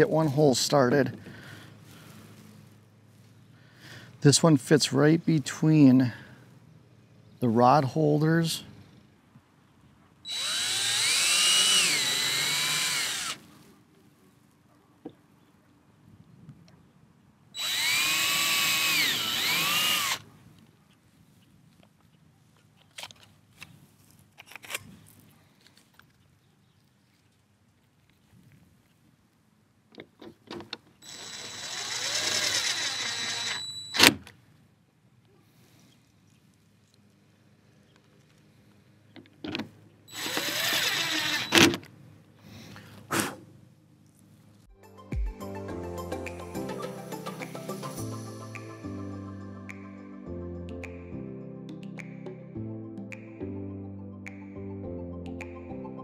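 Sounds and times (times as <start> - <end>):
power drill whining: 10.3 - 13.5, 17.6 - 20.2, 31.0 - 34.2, 40.1 - 41.8.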